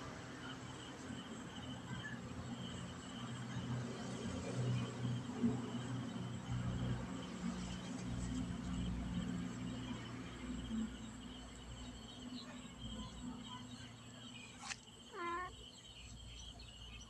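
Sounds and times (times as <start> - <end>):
insects chirring: 0.0 - 17.0
kitten meowing: 15.1 - 15.5.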